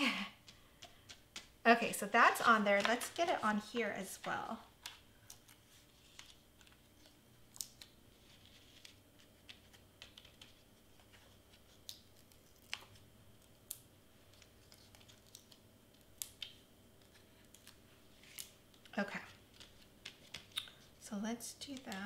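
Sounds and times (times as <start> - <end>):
foam tape clicks and crinkles: 4.8 - 20.9.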